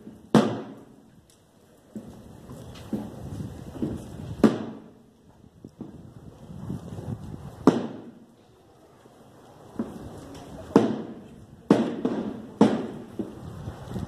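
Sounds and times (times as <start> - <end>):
sharp cracks or bangs: 0.0 - 0.9, 3.8 - 5.0, 7.6 - 8.2, 10.7 - 13.4.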